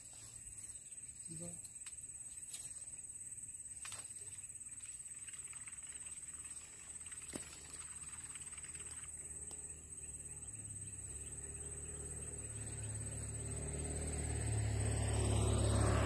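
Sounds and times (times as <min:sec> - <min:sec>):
passing motor vehicle engine: 0:08.2 - 0:16.0.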